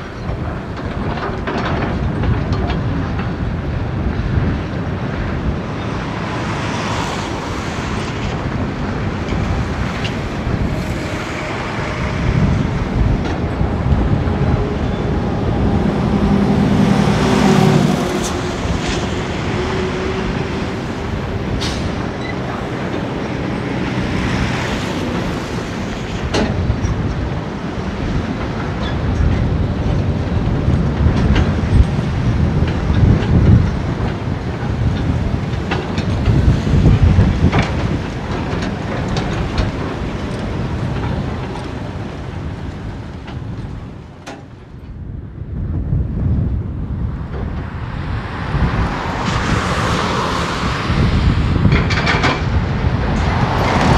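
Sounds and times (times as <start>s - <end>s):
trailer rattling: 0.0s - 53.9s.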